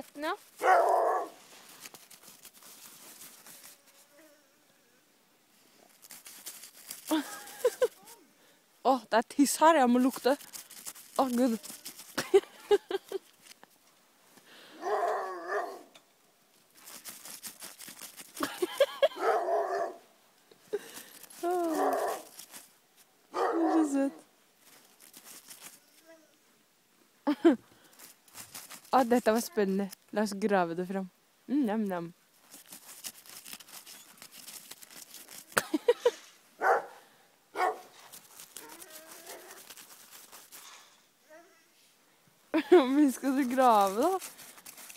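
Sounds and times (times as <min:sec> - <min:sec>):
dog digging in snow: 0:00.1 - 0:03.9, 0:05.8 - 0:08.2, 0:09.6 - 0:12.5, 0:16.7 - 0:19.9, 0:20.8 - 0:22.7, 0:28.0 - 0:29.6, 0:32.4 - 0:36.2, 0:37.6 - 0:40.9, 0:42.8 - 0:44.9
dogs barking: 0:00.6 - 0:01.4, 0:14.8 - 0:15.9, 0:19.2 - 0:20.0, 0:23.3 - 0:23.9, 0:36.6 - 0:37.0, 0:37.6 - 0:37.9.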